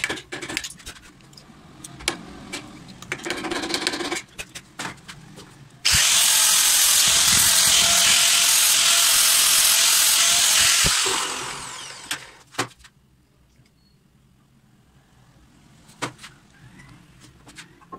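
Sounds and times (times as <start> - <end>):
angle grinder grinding metal: 5.8 - 12.4.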